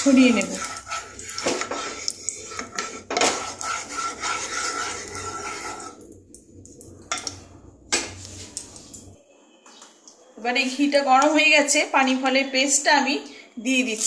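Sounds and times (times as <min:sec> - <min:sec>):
wooden spatula scraping a pan: 0:00.0 - 0:06.0.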